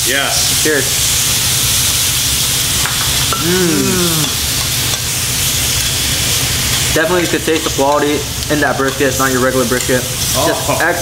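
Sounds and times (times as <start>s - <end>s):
meat sizzling on a grill: 0.0s - 11.0s
man humming: 3.4s - 4.5s.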